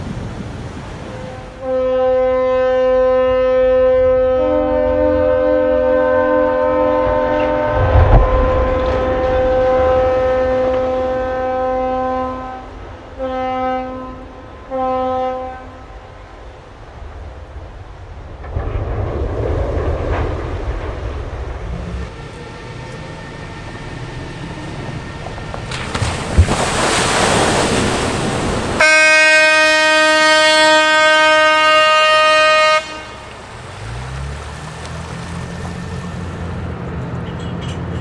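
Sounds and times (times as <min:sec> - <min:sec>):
horn blast: 0:01.1 - 0:15.9, 0:28.8 - 0:33.4
water splashing: 0:16.6 - 0:37.2.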